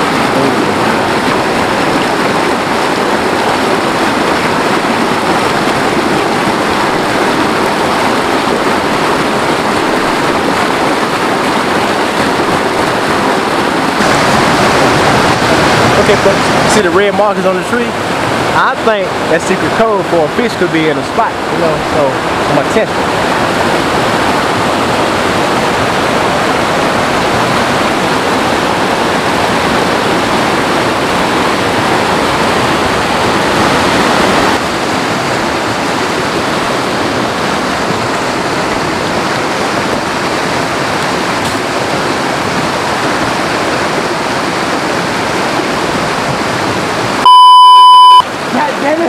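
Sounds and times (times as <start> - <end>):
mountain stream rushing over boulders: 0.0 - 47.3, 48.3 - 49.0.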